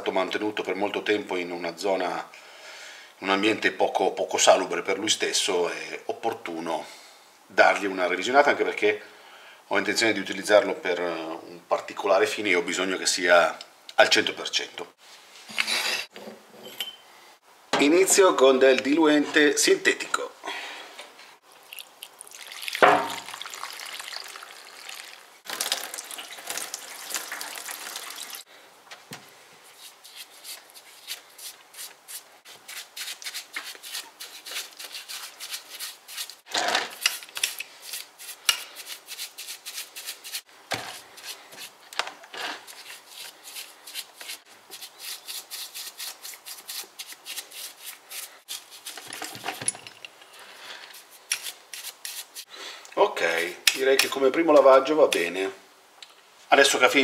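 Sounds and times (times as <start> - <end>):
liquid pouring into plastic tub: 21.6 - 28.4
liquid splash: 21.6 - 28.4
paintbrush scrubbing: 29.6 - 41.8, 42.6 - 49.5, 50.9 - 52.5.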